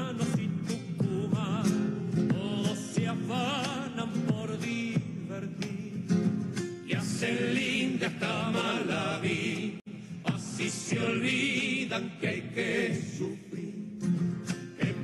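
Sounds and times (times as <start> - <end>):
person singing: 0.0 - 6.2, 14.6 - 15.0
folk dance music: 0.0 - 13.3.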